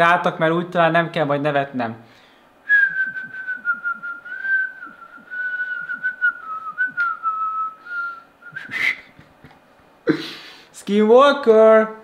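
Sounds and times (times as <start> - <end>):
man whistling: 2.6 - 9.1
loud breathy burst: 10.1 - 10.7.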